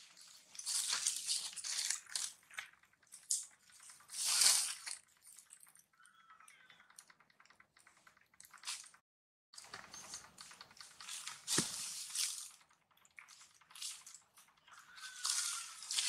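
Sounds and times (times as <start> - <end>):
dry leaves crackling and rustling: 0.0 - 2.4, 11.0 - 12.6, 13.7 - 16.0.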